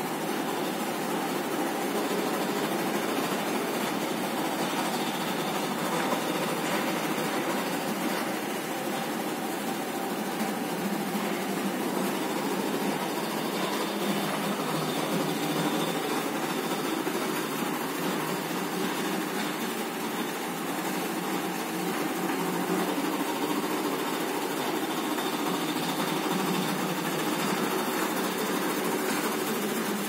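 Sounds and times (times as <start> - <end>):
laminating machine humming: 0.0 - 30.0.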